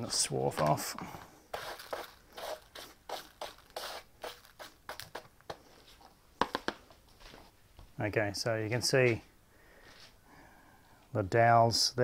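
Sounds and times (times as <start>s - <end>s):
hand brush sweeping metal swarf: 1.5s - 5.0s.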